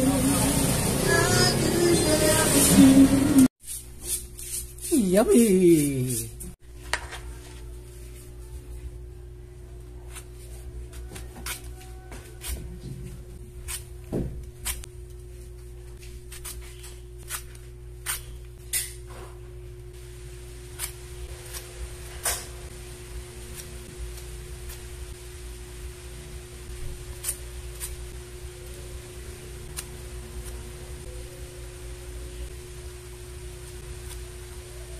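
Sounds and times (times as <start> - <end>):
steady low hum: 0.0 - 34.9
vegetable peeler scraping: 2.0 - 6.6, 16.2 - 18.4.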